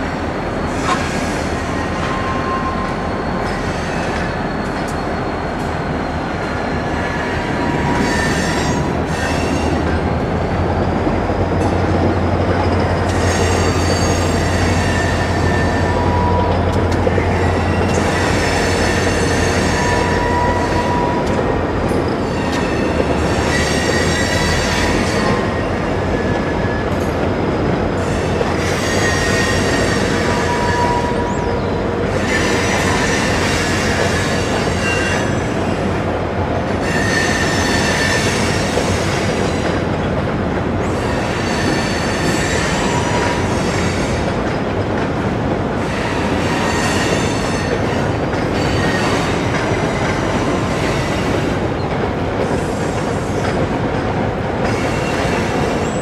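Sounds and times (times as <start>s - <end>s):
freight train rumbling on bridge: 0.0s - 56.0s
high-pitched wheel squeal: 0.6s - 10.6s, 12.5s - 21.3s, 28.0s - 35.6s, 36.8s - 38.8s.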